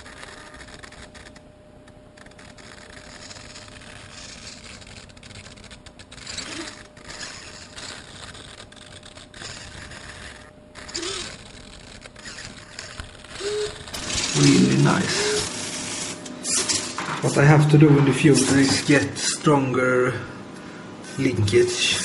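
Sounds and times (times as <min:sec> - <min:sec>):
camera handling scraping and rustling: 0:02.2 - 0:19.4.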